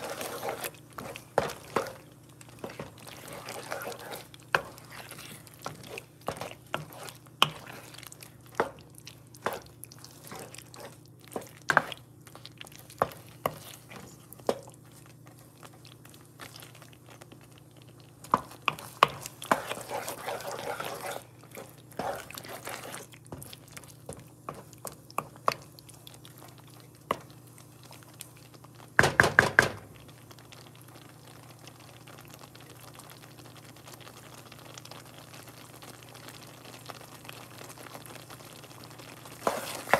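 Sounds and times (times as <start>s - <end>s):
spoon stirring thick sauce: 0.0s - 17.3s, 17.9s - 28.2s, 39.2s - 39.9s
sauce simmering: 0.0s - 39.9s.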